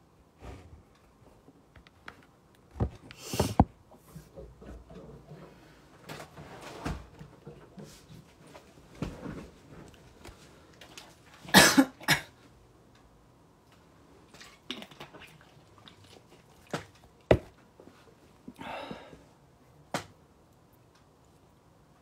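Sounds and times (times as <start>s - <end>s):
man coughing: 11.5s - 12.4s.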